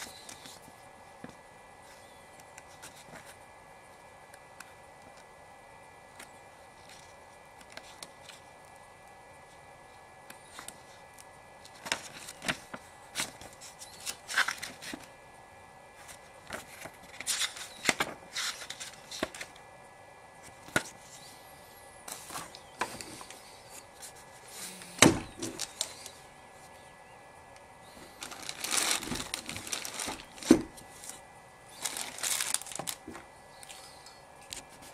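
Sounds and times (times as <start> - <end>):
paper pages flipping and rustling: 0.0 - 3.4, 6.2 - 8.5, 11.6 - 15.1, 16.0 - 19.6, 22.1 - 26.2, 28.0 - 34.9.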